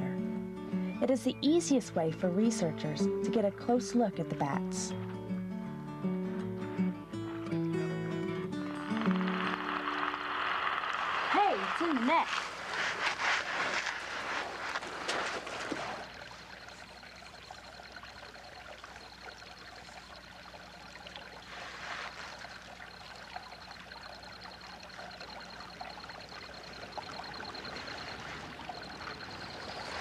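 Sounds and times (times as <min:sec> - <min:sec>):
trickling water: 0:08.6 - 0:30.0.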